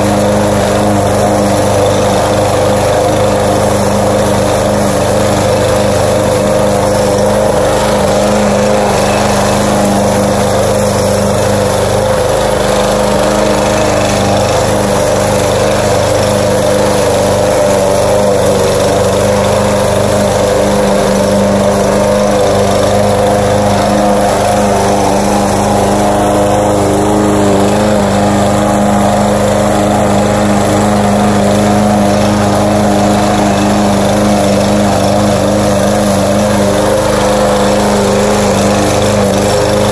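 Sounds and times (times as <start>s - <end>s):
lawn mower cutting grass: 0.0s - 39.9s.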